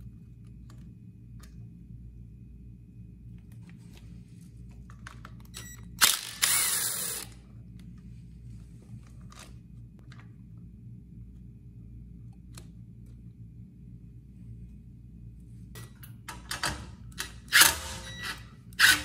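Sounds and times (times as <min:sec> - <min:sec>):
cordless driver spinning bolt: 0:06.0 - 0:07.3.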